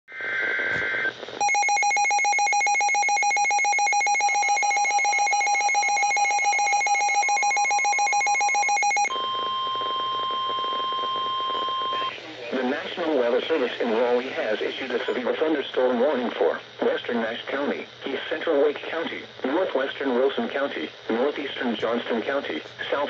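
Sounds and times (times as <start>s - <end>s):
steady warning alarm tone: 0.7s - 15.3s
fast-pulsing alarm beep: 0.8s - 12.1s.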